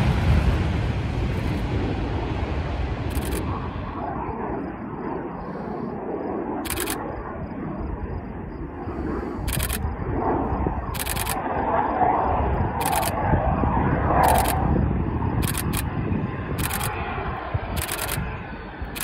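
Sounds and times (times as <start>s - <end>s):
jet engines rumbling: 0.0s - 19.0s
camera shutter firing: 3.1s - 3.4s, 6.6s - 7.0s, 9.5s - 9.8s, 11.0s - 11.4s, 12.8s - 13.2s, 14.2s - 14.6s, 15.4s - 15.9s, 16.6s - 17.0s, 17.8s - 18.2s.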